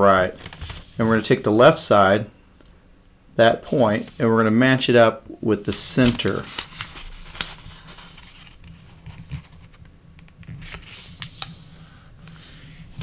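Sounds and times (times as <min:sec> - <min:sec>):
paper rubbing on tabletop: 0:03.7 - 0:04.3, 0:10.6 - 0:13.0.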